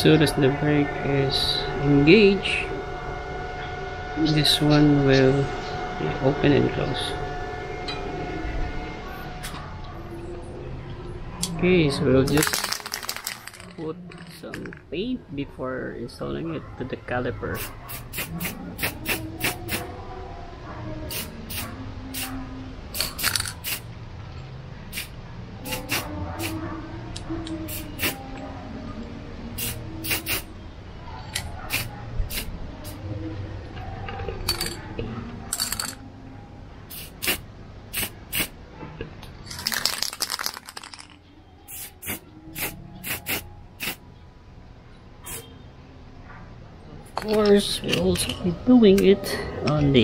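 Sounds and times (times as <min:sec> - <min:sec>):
spray paint can bursts: 0:17.6 - 0:19.9, 0:21.1 - 0:22.3, 0:22.9 - 0:23.9, 0:24.9 - 0:26.6, 0:27.7 - 0:28.2, 0:29.6 - 0:30.5, 0:31.7 - 0:33.0, 0:36.9 - 0:38.6, 0:41.7 - 0:44.0.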